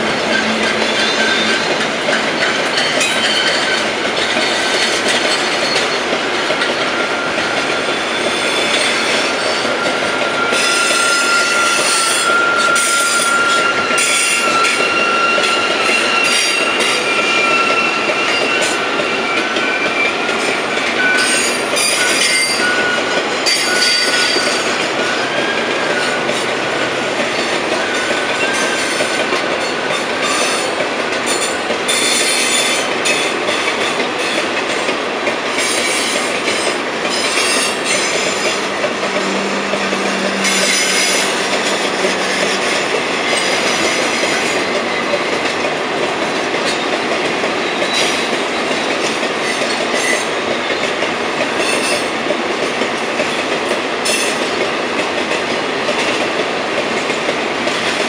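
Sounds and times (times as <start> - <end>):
steel wheels rumbling on rail: 0.0 - 58.0
train cars clanking: 0.0 - 58.0
wheel squeal: 7.0 - 26.2.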